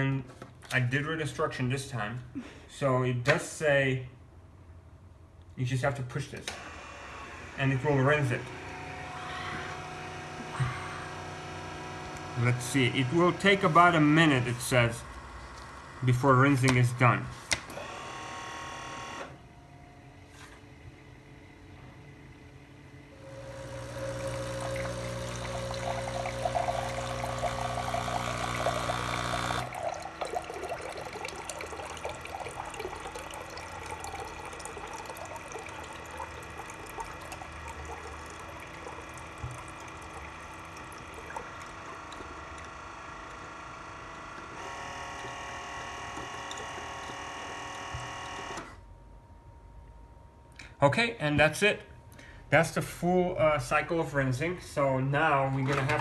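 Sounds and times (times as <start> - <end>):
soda maker humming: 6.5 - 49.0
water pouring into a glass: 23.3 - 42.7, 45.8 - 47.8.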